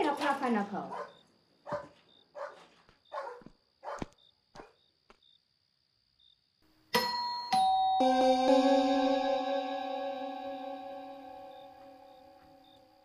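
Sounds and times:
dog barking: 0.9s - 4.8s
electronic doorbell chime: 6.9s - 13.0s.

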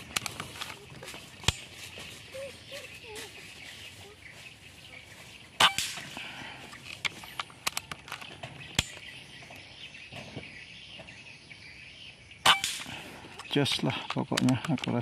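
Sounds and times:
air rifle shot: 5.6s - 6.2s, 12.4s - 13.2s.

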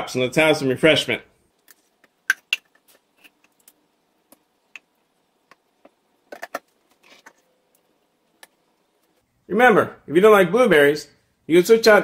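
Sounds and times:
plastic jar and cups clicking: 2.0s - 3.6s.

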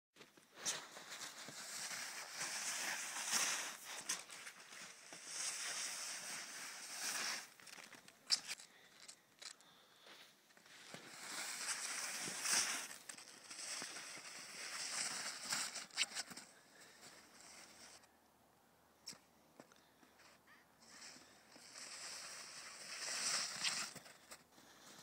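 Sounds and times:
snow crunching underfoot: 0.2s - 9.1s, 9.7s - 18.1s, 20.2s - 25.0s
snowboard scraping over snow: 0.8s - 7.6s, 10.7s - 18.0s, 20.9s - 24.2s.

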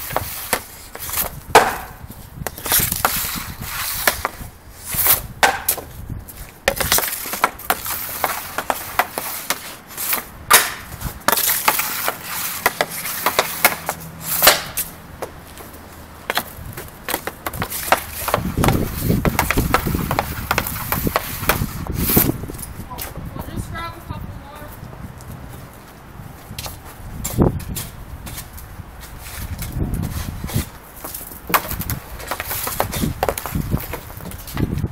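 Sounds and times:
hockey stick striking puck: 0.0s - 4.4s, 5.0s - 5.9s, 6.6s - 15.3s, 16.3s - 21.8s, 31.5s - 34.4s.

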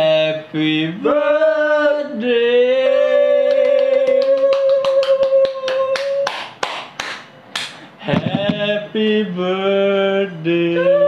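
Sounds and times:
hand claps in a steady beat: 3.5s - 8.6s
person singing drawn-out notes: 10.0s - 11.0s.

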